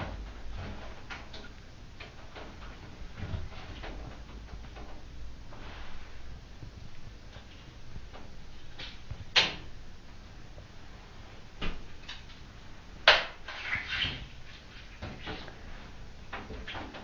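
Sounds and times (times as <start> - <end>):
faint shuffling: 2.6 - 9.3.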